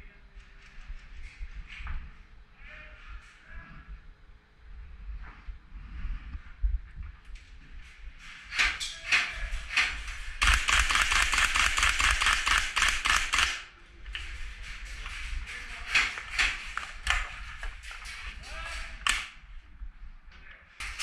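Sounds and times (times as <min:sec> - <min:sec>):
airsoft guns firing indoors: 0:08.3 - 0:19.5, 0:20.8 - 0:21.0.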